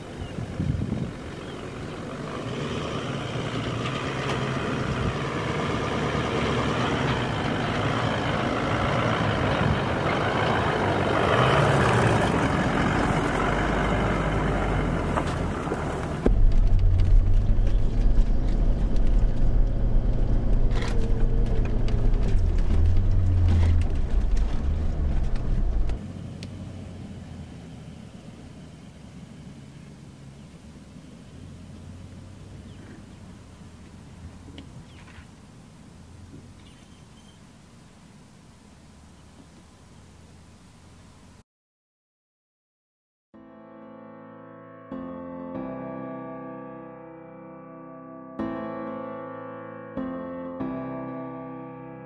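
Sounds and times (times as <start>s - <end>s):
steady engine drone: 0.0s - 36.7s
four-wheel drive engine and tyres: 0.0s - 41.4s
wind: 0.0s - 41.4s.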